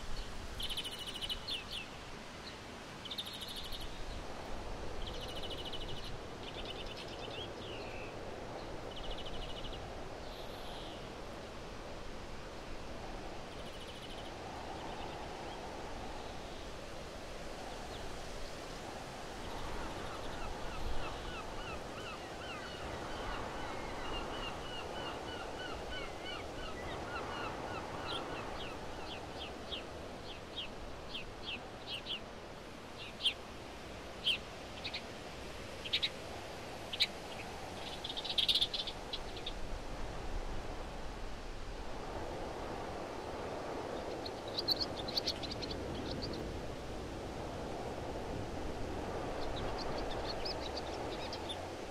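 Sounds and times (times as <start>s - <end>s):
steady background hiss: 0.0s - 51.9s
birds singing: 0.6s - 4.2s, 19.5s - 32.3s, 34.2s - 35.1s, 36.8s - 39.6s, 43.9s - 46.6s, 49.1s - 51.8s.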